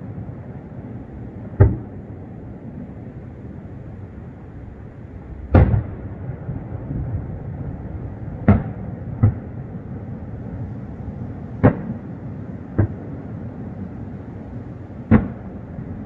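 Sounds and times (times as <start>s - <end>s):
fireworks booming: 0.0s - 2.1s, 4.6s - 13.9s, 14.9s - 16.0s
low background rumble: 0.0s - 16.0s.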